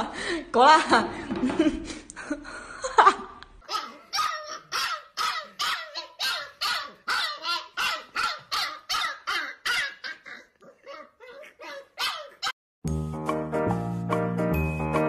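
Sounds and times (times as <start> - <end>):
puppy barking: 3.7 - 12.6.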